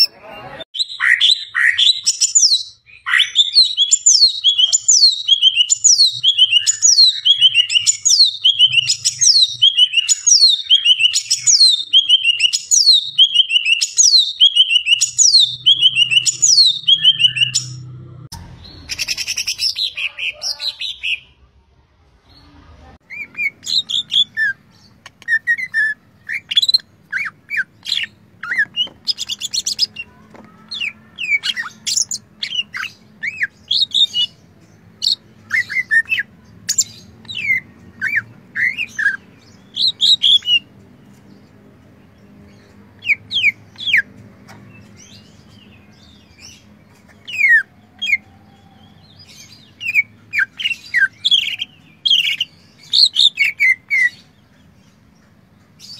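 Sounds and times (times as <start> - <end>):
bird singing chirps and whistles: 0.8 - 17.8, 23.1 - 30.1, 30.8 - 34.4, 35.0 - 40.7, 47.2 - 54.3.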